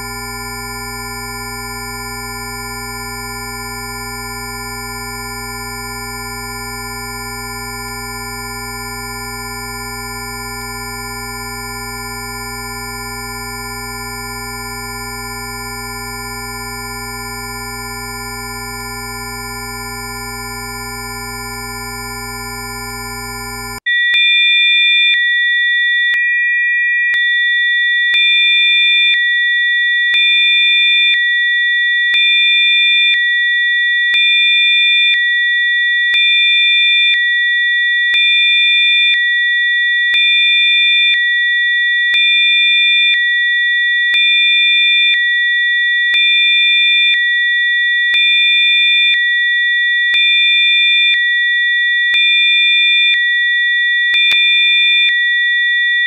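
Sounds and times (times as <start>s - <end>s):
chord of pure sine tones: 0.0s - 23.8s
high-pitched steady tones: 0.0s - 23.8s.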